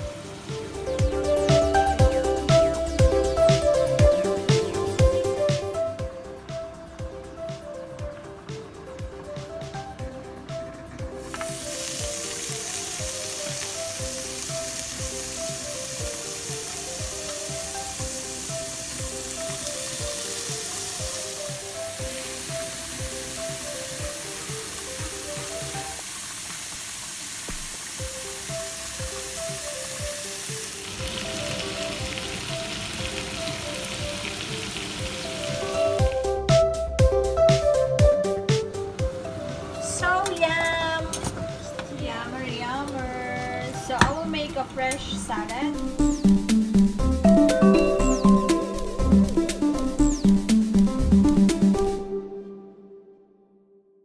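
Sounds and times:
light background music: 0.0 - 26.5, 27.8 - 53.8
steaks sizzling on grill pan: 11.1 - 36.2.

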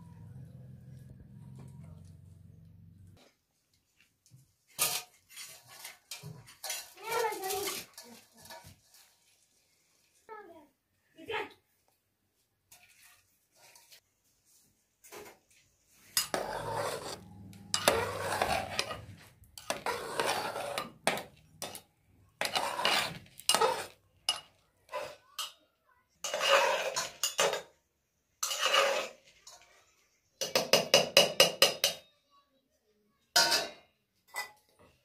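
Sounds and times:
metal ladle scraping a pot: 4.7 - 9.5, 12.7 - 14.0, 16.0 - 25.6, 26.2 - 27.7, 28.4 - 30.1.

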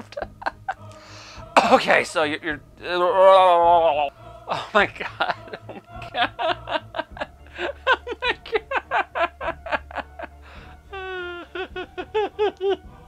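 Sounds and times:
man laughing hard: 0.0 - 0.8, 4.5 - 12.9
wavering vocal note: 0.6 - 13.0
gasping breath: 0.8 - 1.6, 10.4 - 11.6.

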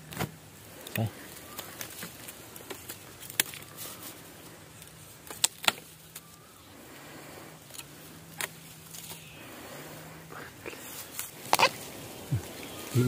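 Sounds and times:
bamboo stems snapping: 0.1 - 4.0, 4.8 - 6.4.

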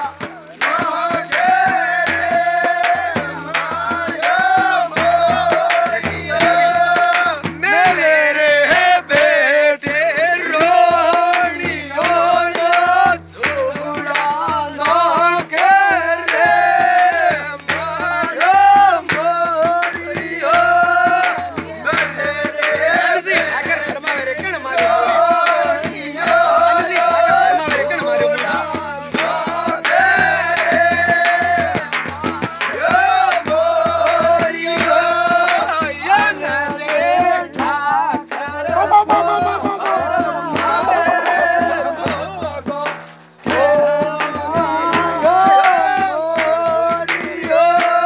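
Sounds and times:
frame drum beat: 0.0 - 48.0
men singing a folk song: 0.0 - 48.0.

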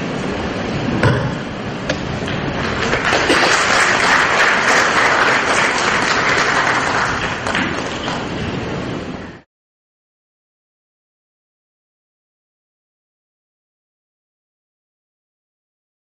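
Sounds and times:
audience applauding: 2.5 - 8.5.

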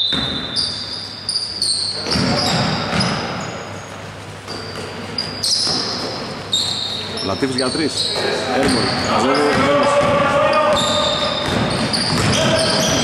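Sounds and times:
basketball bouncing on floor: 0.0 - 0.7, 2.0 - 3.4, 8.1 - 13.0
shoes squeaking on hardwood court: 0.0 - 13.0.

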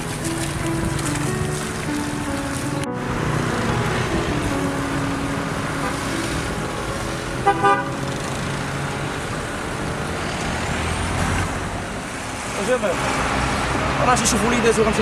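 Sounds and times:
road traffic passing: 0.0 - 15.0
car horn toots: 7.4 - 8.1.

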